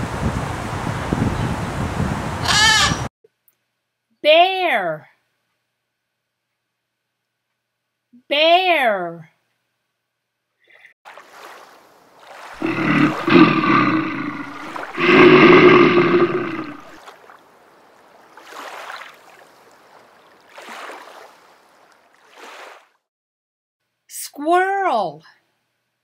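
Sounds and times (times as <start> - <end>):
bear growling: 12.6 - 17.0.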